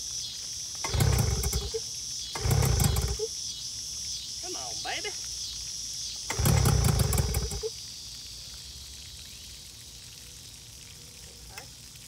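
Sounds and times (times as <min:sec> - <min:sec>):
water hissing from hose: 0:00.0 - 0:12.0
outboard engine cranking: 0:00.8 - 0:01.8, 0:02.4 - 0:03.3, 0:06.3 - 0:07.7.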